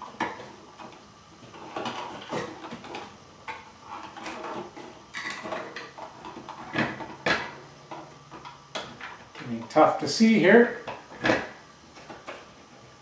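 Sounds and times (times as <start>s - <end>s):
plastic scrapes and rustles: 0.2s - 3.2s, 3.8s - 7.2s.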